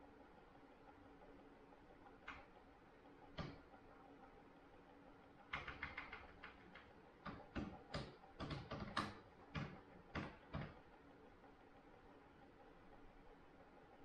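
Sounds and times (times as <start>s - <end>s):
sharp irregular clicks and taps: 2.2s - 2.6s, 3.3s - 3.7s, 5.4s - 10.9s.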